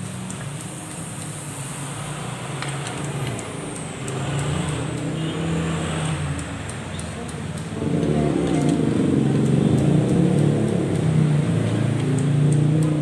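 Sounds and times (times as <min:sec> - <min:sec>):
vehicle engine humming: 0:00.0 - 0:13.0
faint light ticks: 0:06.4 - 0:07.7.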